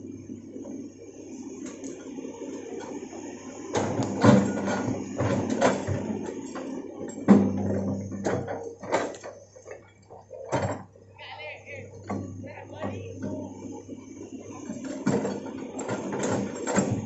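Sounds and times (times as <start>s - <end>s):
excavator diesel engine running: 0.0s - 17.0s
excavator bucket metallic clanks: 3.6s - 11.0s, 11.9s - 13.8s, 14.5s - 17.0s.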